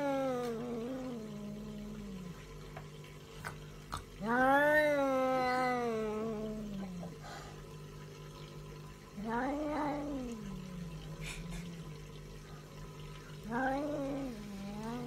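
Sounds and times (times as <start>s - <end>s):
cat yowling: 4.2s - 6.9s, 13.4s - 15.0s.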